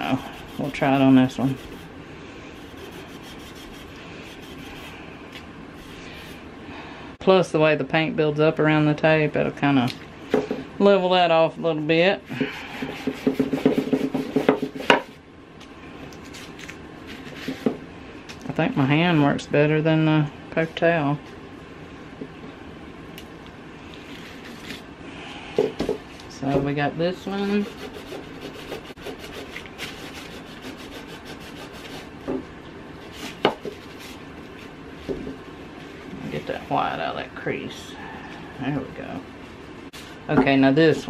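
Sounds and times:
rubbing on painted wood: 0.0s - 1.9s, 2.6s - 5.0s, 12.3s - 15.2s, 17.0s - 17.8s, 27.2s - 32.4s.

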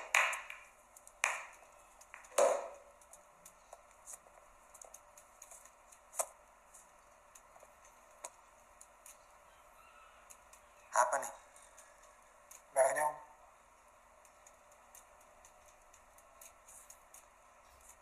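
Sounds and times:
pool balls clacking: 0.0s - 2.9s.

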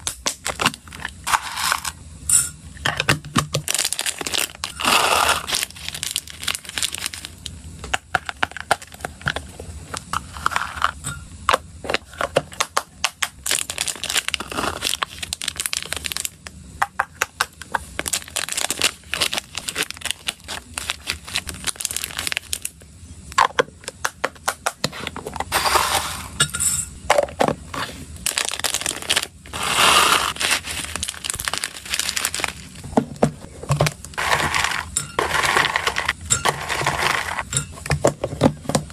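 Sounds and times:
plastic bags crinkling: 3.6s - 7.5s, 13.4s - 16.4s, 17.8s - 22.7s, 28.2s - 37.4s
seeds shifting in a bag: 28.2s - 32.8s.

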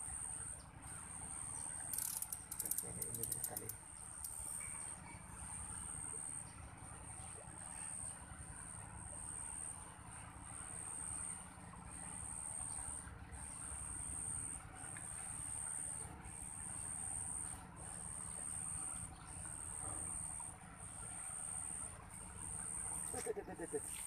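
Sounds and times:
insects trilling: 0.0s - 4.8s, 13.6s - 24.0s.

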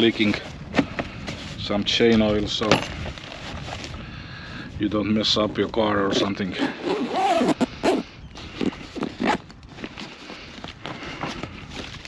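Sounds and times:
fabric bag rustling: 6.0s - 8.0s
zipper rasping: 6.1s - 10.1s.

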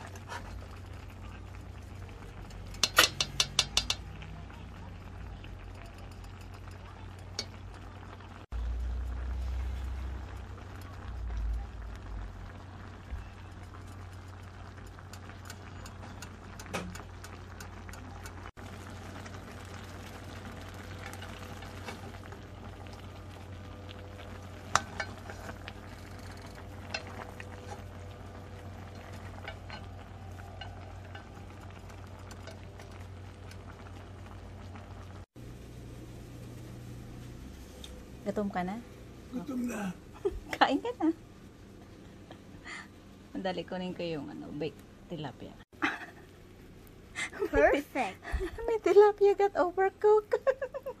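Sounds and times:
pot simmering: 0.0s - 51.0s
utensil clicking against pot: 2.4s - 4.3s, 13.8s - 18.4s.

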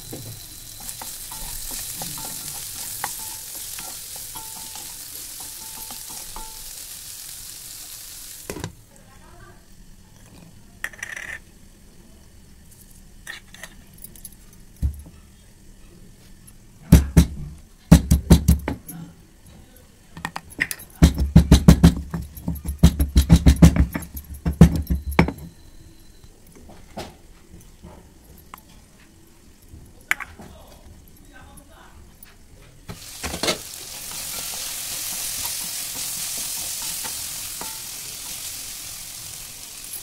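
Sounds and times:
pestle pounding in stone mortar: 16.9s - 18.8s, 21.0s - 25.4s.

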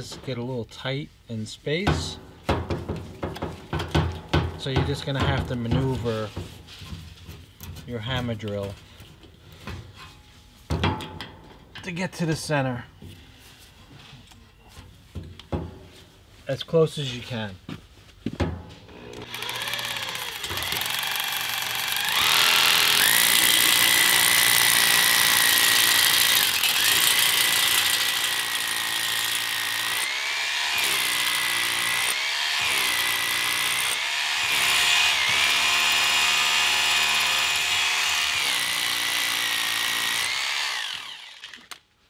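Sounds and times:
hammer drill boring into concrete: 19.0s - 41.8s.

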